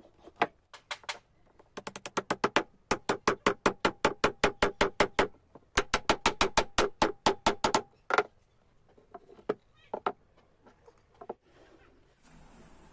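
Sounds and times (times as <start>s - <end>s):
hammer tapping wooden peg: 1.8s - 8.3s.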